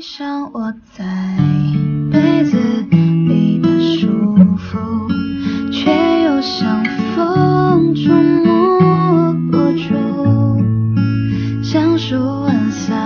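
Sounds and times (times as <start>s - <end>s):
strummed acoustic guitar: 1.0s - 13.0s
melody line: 5.9s - 10.2s.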